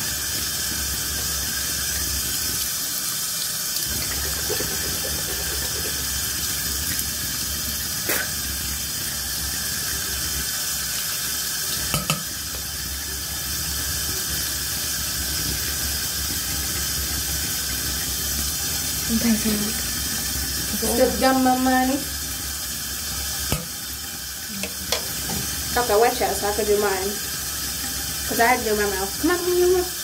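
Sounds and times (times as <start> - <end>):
sink tap running: 0.0 - 30.0.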